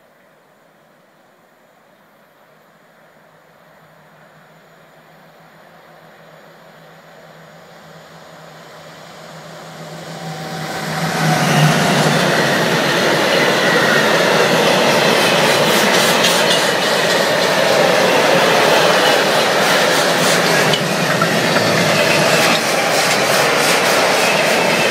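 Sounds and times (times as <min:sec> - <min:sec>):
electric locomotive humming: 0:03.0 - 0:24.9
train wheels rolling on rails: 0:06.8 - 0:24.9
wheels clicking over rail joints: 0:10.6 - 0:24.9.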